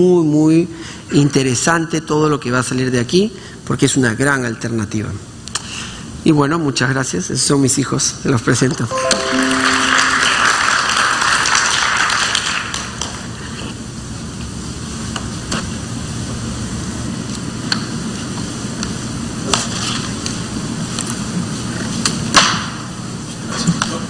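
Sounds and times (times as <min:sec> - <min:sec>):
audience applause: 0:09.0 - 0:12.8.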